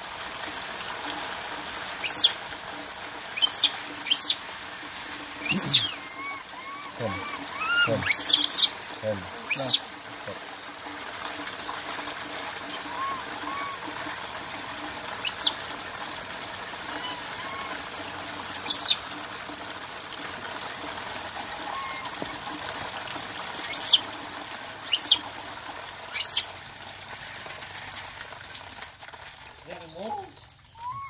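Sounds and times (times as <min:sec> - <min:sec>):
rain falling and dripping: 0:00.0 - 0:31.0
high-pitched chirps: 0:03.4 - 0:04.4, 0:05.4 - 0:08.7.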